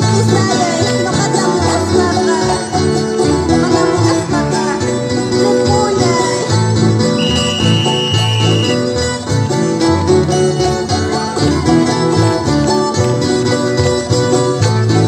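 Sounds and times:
guitars strummed and plucked: 0.0 - 15.0
high steady note: 7.2 - 8.8.

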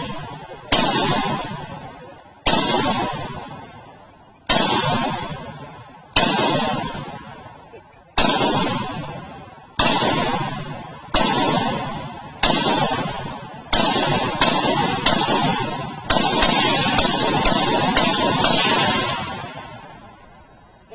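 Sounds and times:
rifle shots with echo: 0.0 - 20.9.

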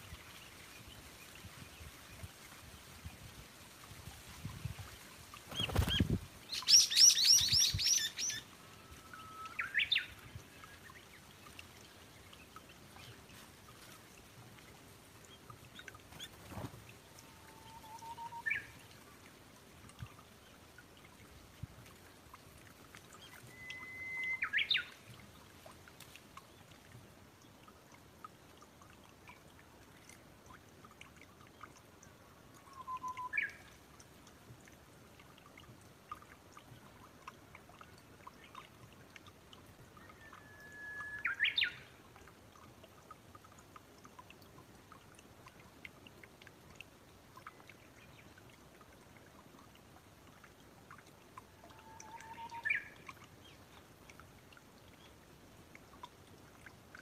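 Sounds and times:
water trickling: 0.0 - 57.0.

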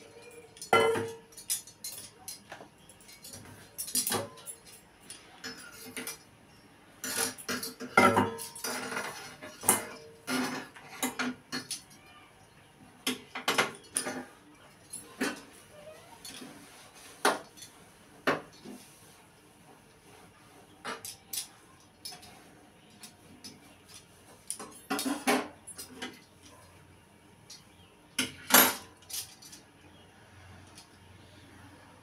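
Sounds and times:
metal kitchenware clanking on pan: 0.0 - 2.5, 7.0 - 11.8, 24.6 - 26.1.

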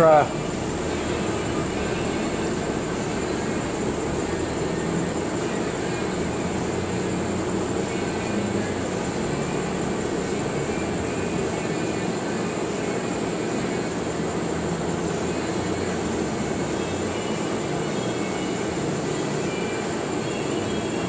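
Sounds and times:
machine drone: 0.0 - 21.0.

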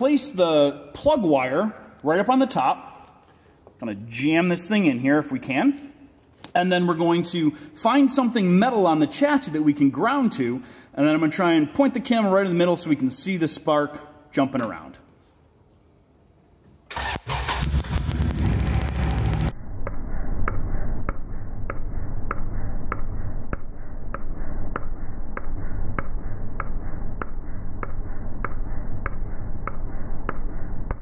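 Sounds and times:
misfiring engine rumble: 17.0 - 19.5.

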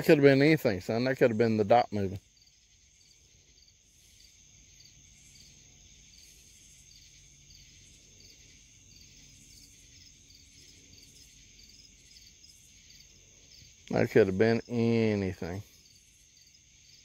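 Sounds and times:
crickets chirping: 0.0 - 17.0
high-pitched insect trill: 0.0 - 17.0.

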